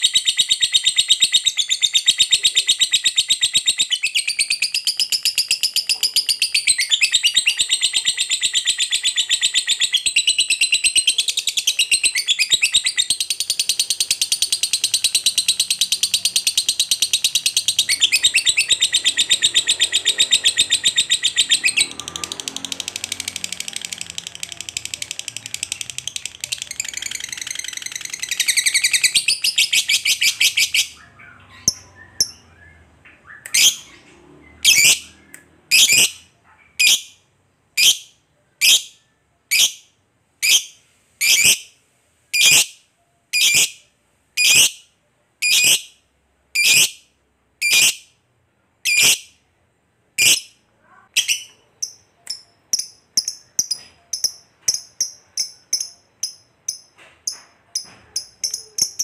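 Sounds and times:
lovebird chattering trill: 0.0s - 22.3s, 23.2s - 32.6s, 47.6s - 48.1s, 48.8s - 49.3s, 51.2s - 59.0s
lovebird sharp chirps: 0.0s - 37.2s, 37.8s - 41.8s, 42.4s - 48.2s, 48.8s - 49.4s, 50.2s - 50.6s, 51.2s - 59.0s.

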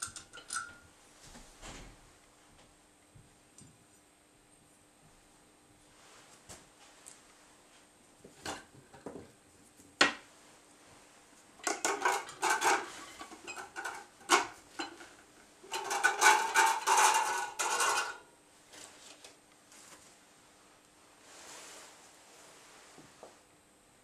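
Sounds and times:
metal parts clinking and scraping: 11.6s - 14.5s, 15.7s - 18.2s.

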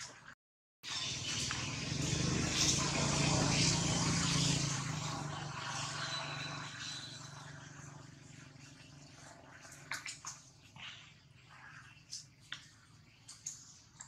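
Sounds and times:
vehicle engine hum: 0.9s - 9.9s.

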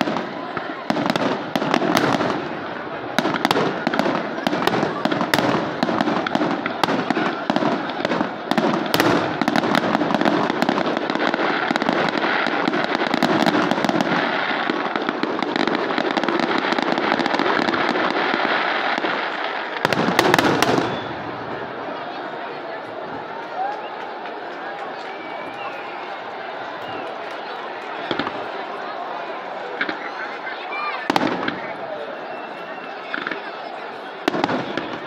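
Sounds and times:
fireworks bursting and crackling: 0.0s - 35.0s.

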